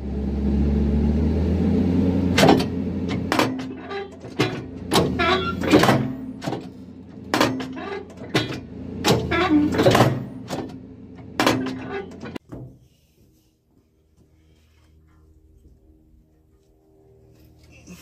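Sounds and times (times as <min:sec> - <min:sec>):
machine engine and hydraulics: 0:00.0 - 0:16.2
loud metal clanks: 0:02.3 - 0:12.7.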